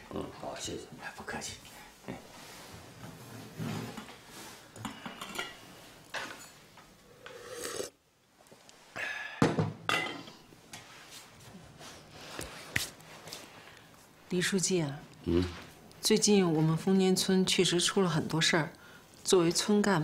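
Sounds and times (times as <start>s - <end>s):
person drinking tea: 7.0s - 8.0s.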